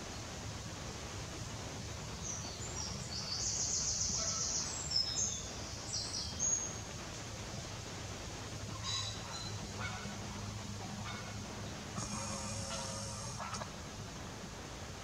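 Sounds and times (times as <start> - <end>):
low background rumble: 6.8 - 15.0.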